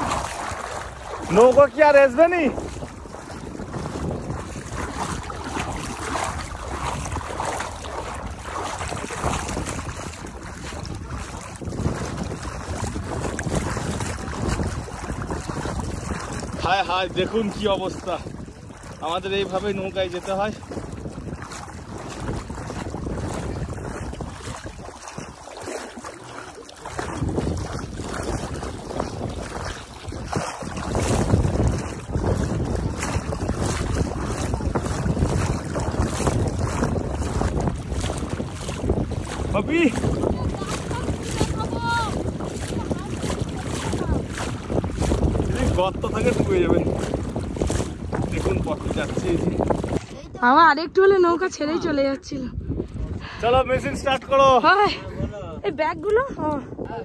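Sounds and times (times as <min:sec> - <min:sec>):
water sloshing around wading legs: 0:00.0 - 0:57.0
wind buffeting microphone: 0:00.0 - 0:57.0.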